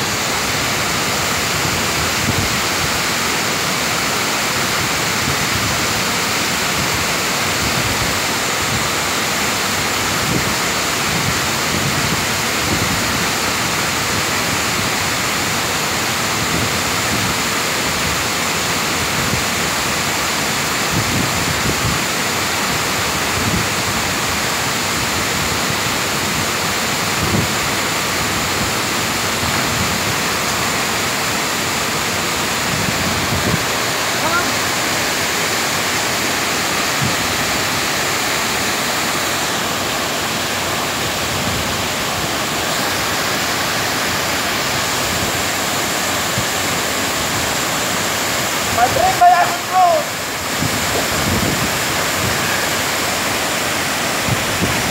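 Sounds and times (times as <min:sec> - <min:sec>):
waterfall rushing: 0:00.0 - 0:54.9.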